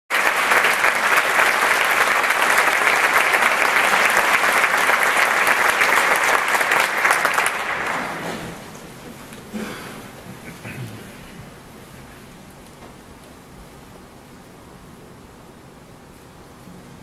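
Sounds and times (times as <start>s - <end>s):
audience applauding: 0.1s - 8.8s.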